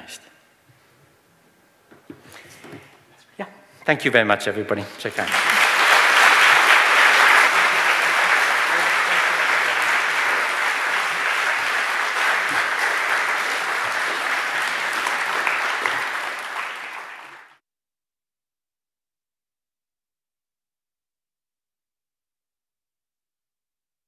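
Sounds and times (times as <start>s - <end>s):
audience applauding: 5.1s - 17.6s.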